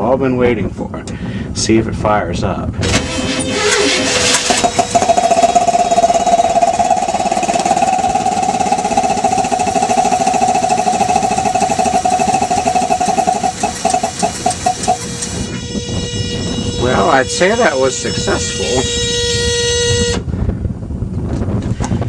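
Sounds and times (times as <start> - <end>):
air compressor popping: 2.8 - 16.4
engine running: 2.8 - 19.9.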